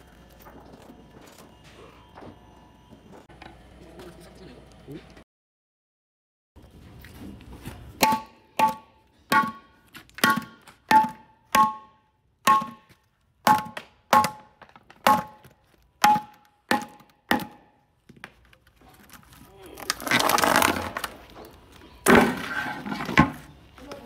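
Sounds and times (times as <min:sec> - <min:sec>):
sharp knocks: 0:08.0 - 0:17.7.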